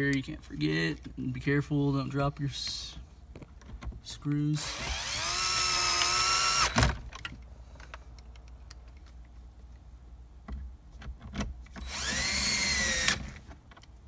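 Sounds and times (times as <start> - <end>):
power drill motor whining: 4.6 - 7.0, 11.8 - 13.4.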